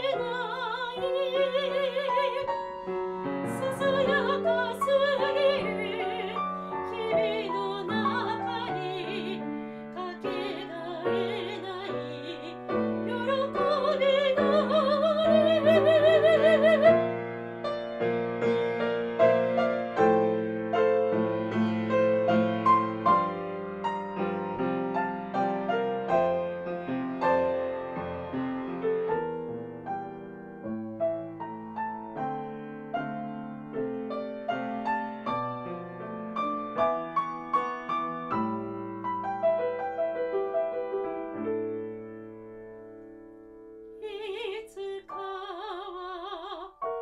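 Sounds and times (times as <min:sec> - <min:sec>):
soprano singing with vibrato: 0:00.0 - 0:17.2, 0:44.0 - 0:47.0
grand piano accompaniment: 0:00.0 - 0:47.0.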